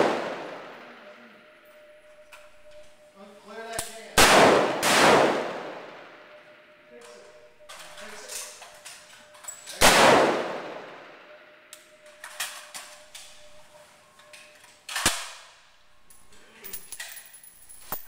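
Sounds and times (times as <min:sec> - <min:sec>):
rifle shots echoing: 0:00.0 - 0:01.2, 0:03.8 - 0:06.7, 0:09.7 - 0:11.3
faint sharp gunshot cracks: 0:03.8 - 0:05.8, 0:09.8 - 0:10.9.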